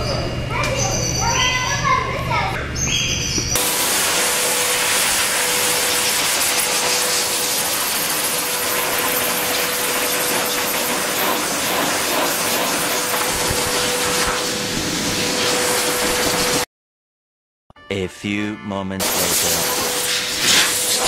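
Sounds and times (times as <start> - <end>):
blower dryer running: 3.6 - 16.7, 19.0 - 21.0.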